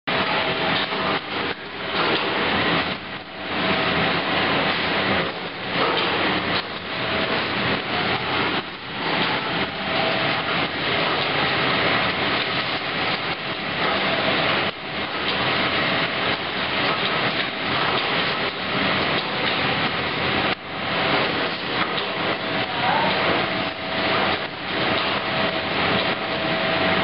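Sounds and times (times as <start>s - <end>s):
machines clattering and humming: 0.1s - 27.0s.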